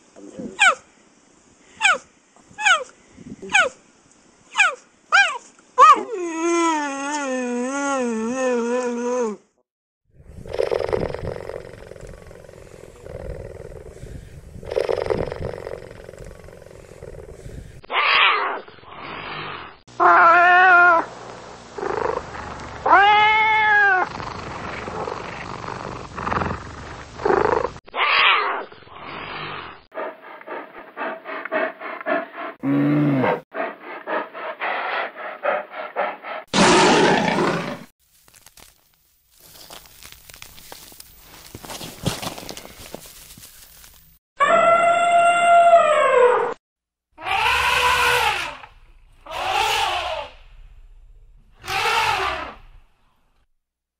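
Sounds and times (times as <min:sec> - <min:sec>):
bear growling grunts: 0:32.6 - 0:33.4
bear roaring: 0:32.6 - 0:37.9, 0:47.2 - 0:50.8, 0:51.5 - 0:52.9
cheetah rasping: 0:47.2 - 0:50.8, 0:51.5 - 0:52.8
low steady rumble: 0:48.5 - 0:51.7.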